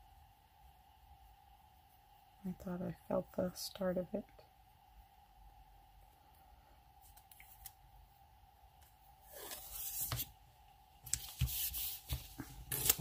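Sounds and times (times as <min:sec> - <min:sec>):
faint steady hum: 0:00.0 - 0:13.0
tape rustling and tearing: 0:11.1 - 0:13.0.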